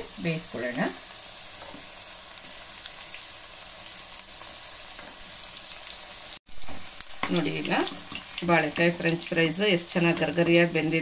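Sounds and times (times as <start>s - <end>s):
food sizzling in hot oil: 0.0s - 11.0s.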